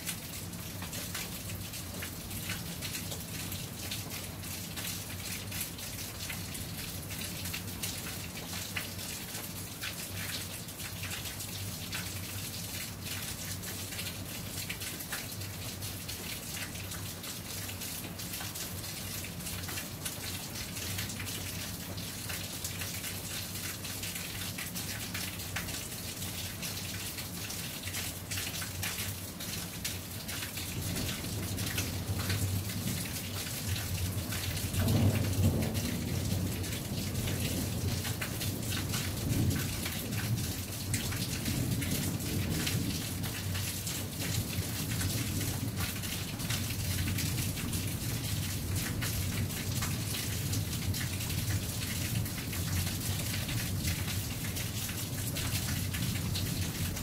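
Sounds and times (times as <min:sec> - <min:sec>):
rain drops striking surface: 0:00.0 - 0:57.0.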